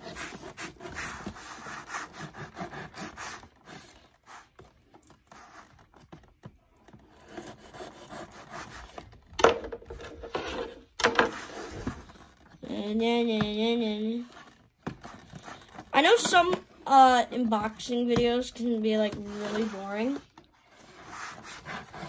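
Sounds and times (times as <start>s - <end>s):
knife sawing through packing tape: 0.0s - 4.6s, 20.9s - 22.0s.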